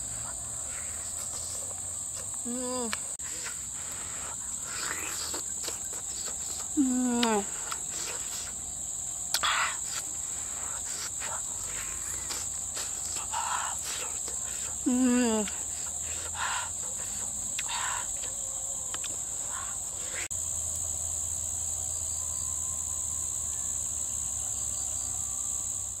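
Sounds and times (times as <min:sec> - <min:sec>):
night insects trilling: 0:00.0 - 0:26.0
person humming: 0:02.2 - 0:08.6, 0:09.3 - 0:20.3.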